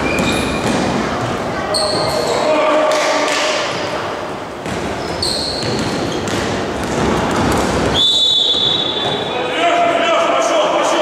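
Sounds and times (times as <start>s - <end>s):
basketball bouncing on court: 0.0s - 2.2s, 4.6s - 9.2s
brief high squeak: 5.0s - 5.7s.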